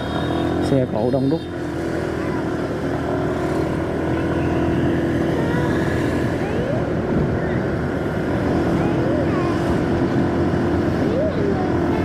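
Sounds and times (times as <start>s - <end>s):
passing traffic: 0.0s - 12.0s
road noise: 0.0s - 12.0s
vehicle engine drone: 0.0s - 12.0s.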